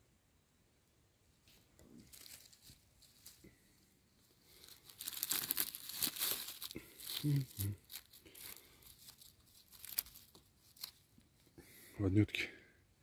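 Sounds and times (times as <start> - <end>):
dry leaves rustling and crackling: 1.9 - 3.7, 4.5 - 11.0.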